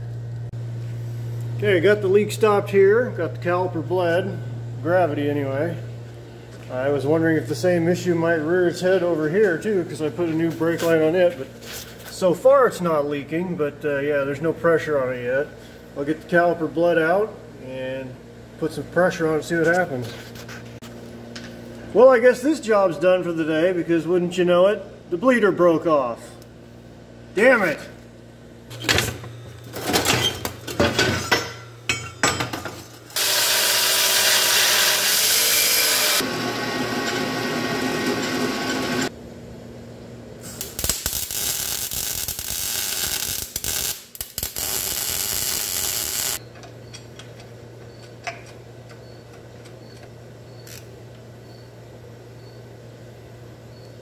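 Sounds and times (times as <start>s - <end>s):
low steady hum: 0.0s - 33.2s
handheld power tool running: 33.2s - 39.1s, 41.8s - 46.4s.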